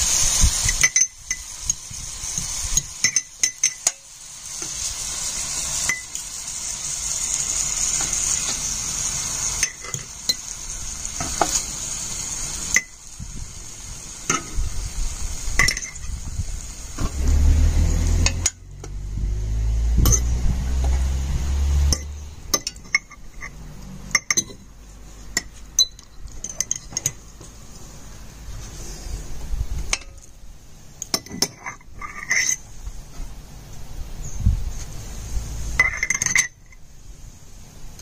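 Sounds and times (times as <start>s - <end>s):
forks clinking against glass jar: 0.6s - 1.5s, 2.8s - 4.0s
low rumble: 16.4s - 22.5s.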